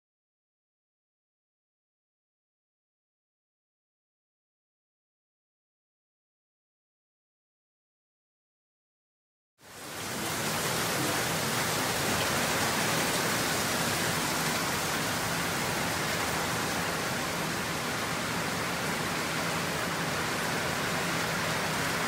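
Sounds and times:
steady rain: 0:09.6 - 0:22.0.

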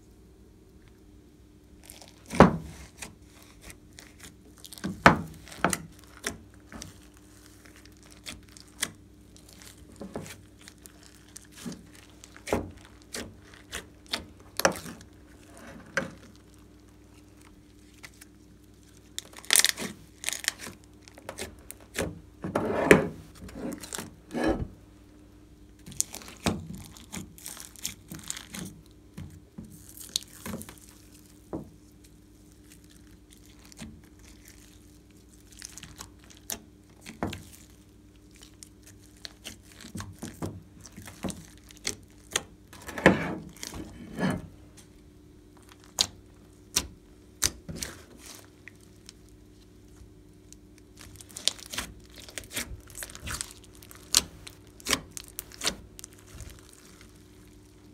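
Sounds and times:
slime squelching and popping: 0:45.6 - 0:57.9.

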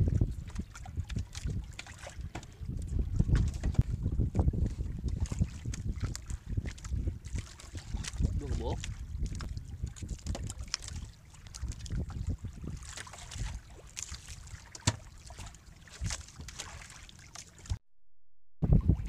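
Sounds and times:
wind rumbling on microphone: 0:00.0 - 0:16.8, 0:18.6 - 0:19.0
water lapping against boat hull: 0:00.0 - 0:17.8.

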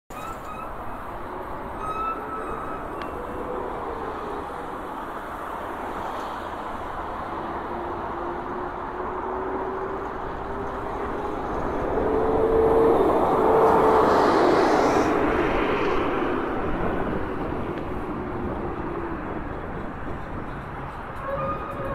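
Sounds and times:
passing cars: 0:00.3 - 0:21.9.

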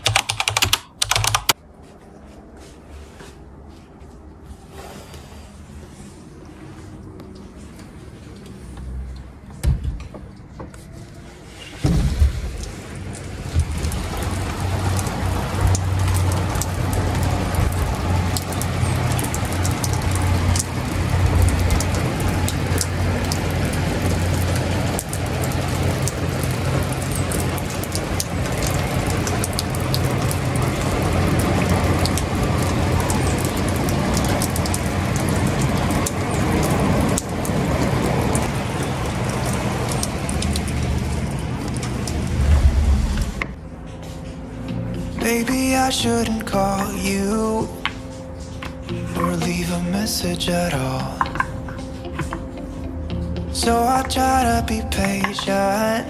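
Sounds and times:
sharp clicks: 0:00.0 - 0:01.6
rain on paving and grass: 0:11.7 - 0:43.6, 0:45.2 - 0:56.0.

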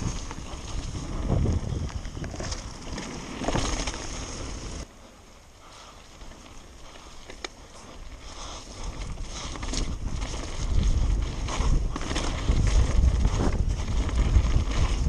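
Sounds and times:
wind on microphone: 0:00.0 - 0:03.0, 0:08.4 - 0:15.0
bike rattling and knocking: 0:00.0 - 0:04.8, 0:08.4 - 0:15.0
tyres rumbling over dirt: 0:00.0 - 0:04.8, 0:08.2 - 0:15.0.

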